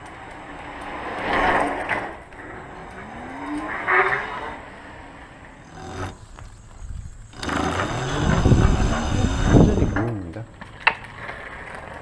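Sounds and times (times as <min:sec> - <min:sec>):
bike tyres and drivetrain rumble: 0:00.0 - 0:12.0
electric motor whine: 0:05.6 - 0:10.0.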